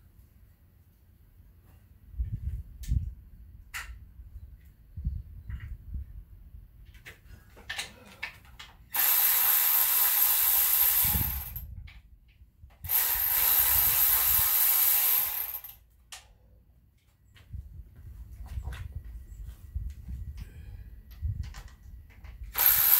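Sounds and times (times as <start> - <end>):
power ratchet running: 8.9 - 11.6, 12.9 - 15.8, 22.6 - 22.9.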